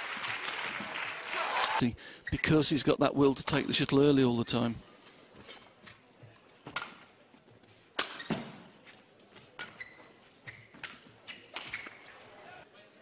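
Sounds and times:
shoes squeaking on court: 4.9s - 12.6s
rackets hitting shuttlecock: 6.7s - 7.1s, 8.0s - 8.6s, 10.8s - 12.1s.

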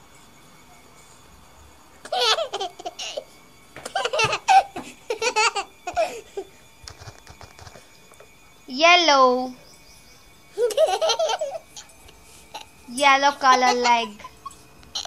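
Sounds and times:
baby giggling: 2.1s - 3.2s, 3.9s - 6.5s, 10.6s - 11.9s, 13.4s - 15.0s.

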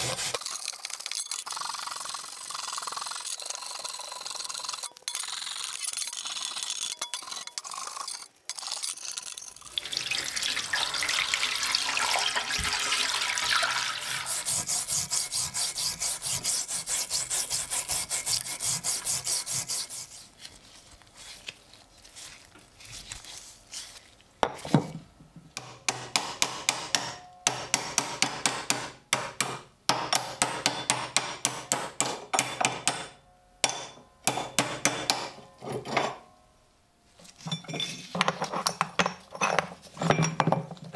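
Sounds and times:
scraper scraping rust off steel: 14.0s - 20.4s
hammer tapping metal: 25.6s - 35.5s.

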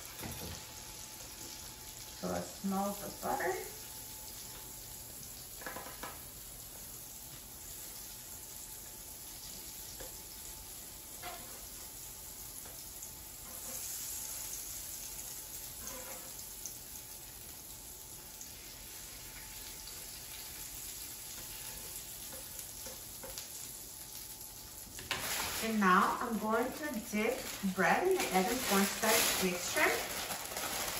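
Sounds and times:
butter sizzling on a griddle: 0.0s - 30.9s
spatula scraping: 15.8s - 16.3s.

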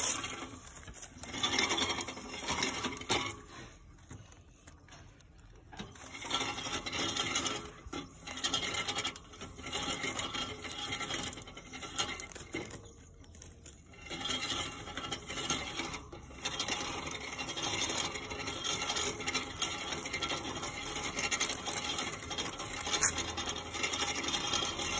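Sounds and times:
rodent shredding paper: 8.3s - 15.6s.

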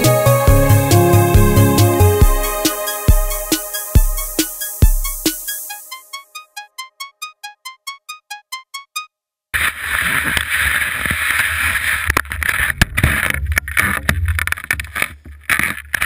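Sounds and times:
skis gliding over snow: 9.6s - 16.0s.

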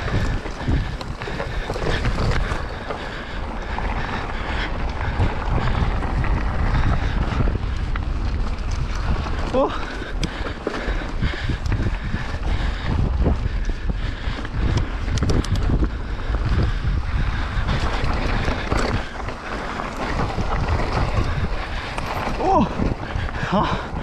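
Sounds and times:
tyres rumbling on dirt: 0.0s - 24.0s
wind buffeting microphone: 0.0s - 24.0s
bike knocks and rattles: 5.0s - 23.8s.

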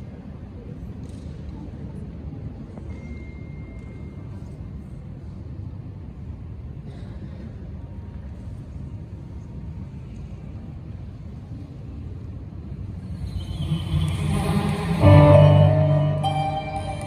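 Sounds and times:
low rumble of hall noise: 0.0s - 17.0s
music: 13.0s - 17.0s.

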